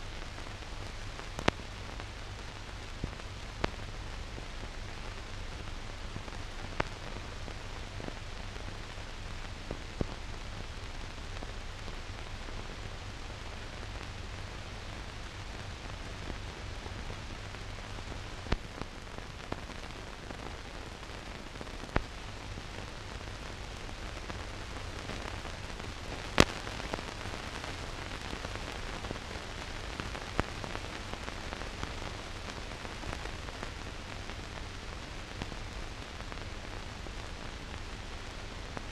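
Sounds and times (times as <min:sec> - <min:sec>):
film surface hiss: 0:00.0 - 0:38.9
sharp clicks and pops: 0:01.3 - 0:01.7, 0:25.9 - 0:27.2.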